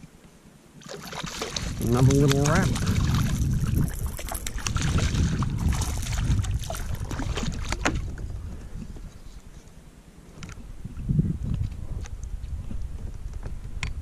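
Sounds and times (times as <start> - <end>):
fish splashing at water surface: 0.8 - 8.1
low rumble: 1.5 - 9.0.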